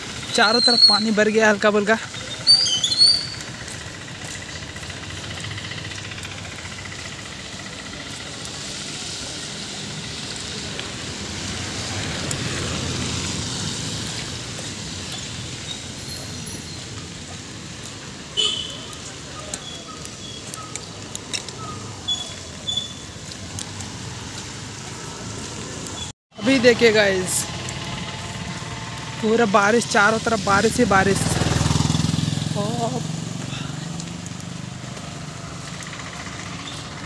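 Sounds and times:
rain noise: 0:00.0 - 0:37.0
traffic on wet road: 0:00.0 - 0:37.0
short high chirps and ticks: 0:02.2 - 0:03.6, 0:18.5 - 0:23.1
vehicle passing: 0:03.4 - 0:18.3, 0:21.0 - 0:37.0.

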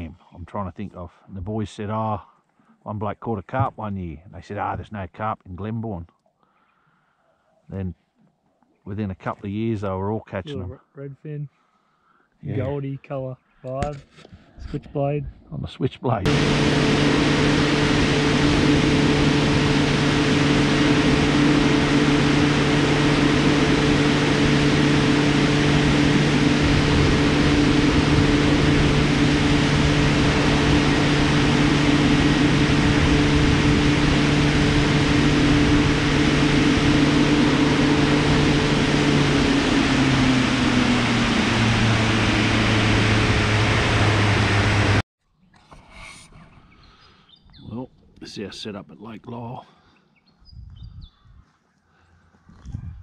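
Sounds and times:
outboard motor engine: 0:16.3 - 0:45.0.

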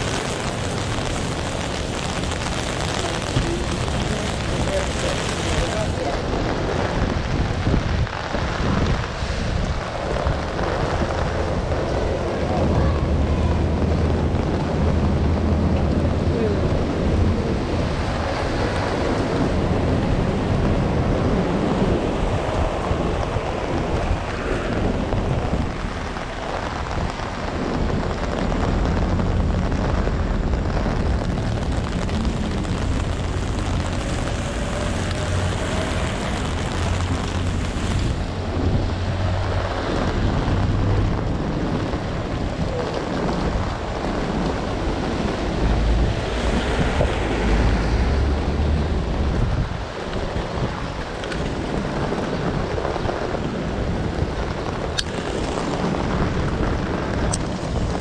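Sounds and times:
heavy rain hissing: 0:00.0 - 0:58.0
strong wind buffeting microphone: 0:00.0 - 0:58.0.

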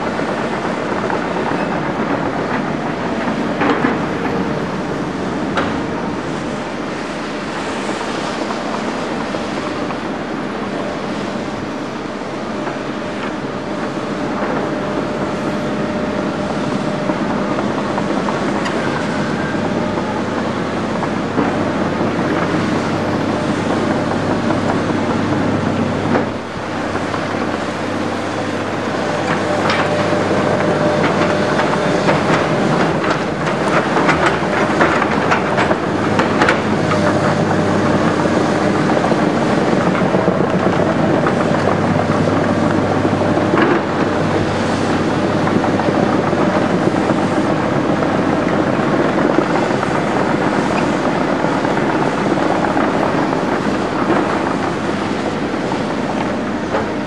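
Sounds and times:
excavator diesel engines humming: 0:00.0 - 0:57.0
steel tracks clanking on rubble: 0:00.0 - 0:57.0.

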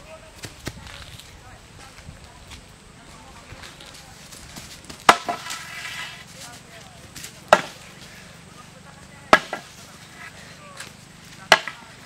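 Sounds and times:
bamboo pole knocking: 0:05.1 - 0:05.5, 0:09.3 - 0:09.7, 0:11.5 - 0:11.8.

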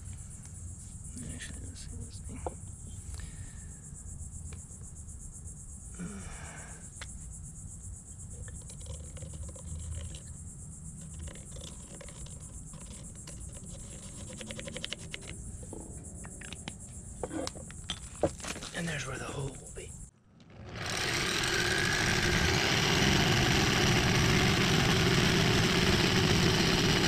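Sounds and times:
high-pitched insect chorus: 0:00.0 - 0:20.1
marker scratching on plastic: 0:11.0 - 0:15.4.

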